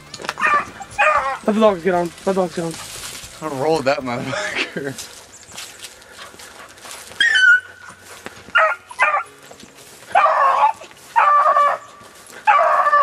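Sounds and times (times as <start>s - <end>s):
dog yelping and baying: 0.4s - 1.5s, 7.1s - 9.3s, 10.1s - 13.0s.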